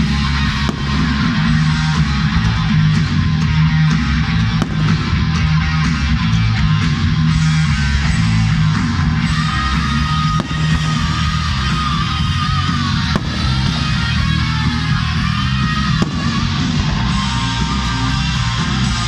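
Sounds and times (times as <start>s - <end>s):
rock music with electric guitar: 0.0s - 19.0s
sharp crack: 0.4s - 2.1s, 4.5s - 6.0s, 10.2s - 12.2s, 12.9s - 14.9s, 15.8s - 17.1s.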